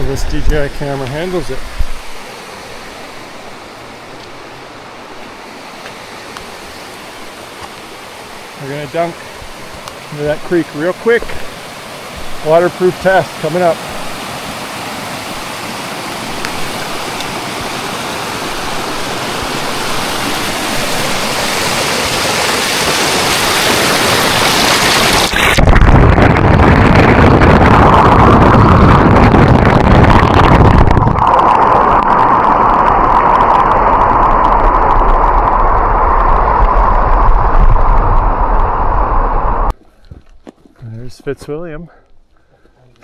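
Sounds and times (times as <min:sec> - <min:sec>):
rushing creek water: 0:00.0 - 0:25.8
muffled underwater rush: 0:06.5 - 0:39.8.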